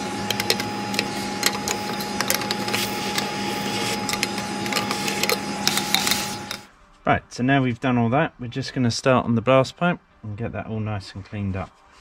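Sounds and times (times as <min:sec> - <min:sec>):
vacuum cleaner humming: 0:00.0 - 0:06.7.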